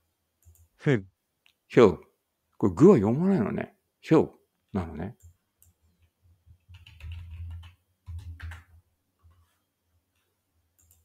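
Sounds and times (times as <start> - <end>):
computer keyboard keys clicking: 5.2 - 9.4, 10.8 - 11.0.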